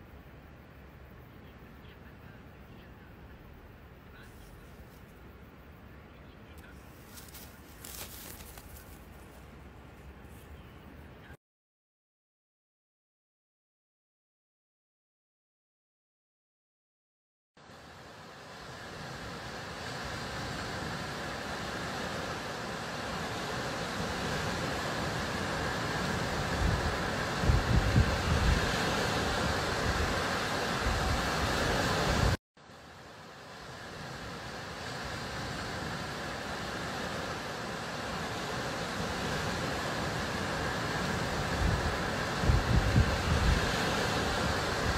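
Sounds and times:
waves breaking on beach: 17.6s - 44.9s
sea surf washing on sand: 17.7s - 44.9s.

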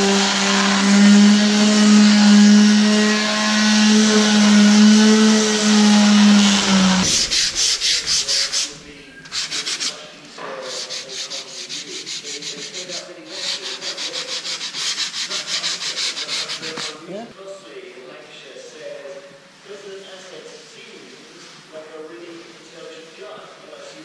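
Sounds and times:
electric sander hum: 0.0s - 8.1s
hand sanding strokes: 0.0s - 17.1s.

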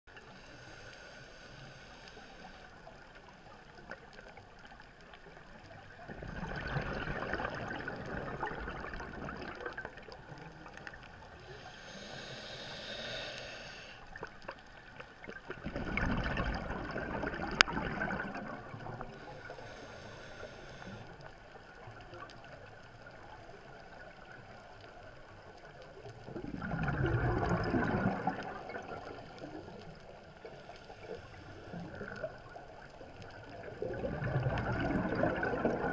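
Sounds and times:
bubbling exhalation underwater: 6.1s - 10.0s, 15.6s - 18.8s, 26.4s - 29.1s, 33.6s - 35.9s
regulator hissing inhalation: 11.6s - 14.0s, 19.3s - 21.1s.

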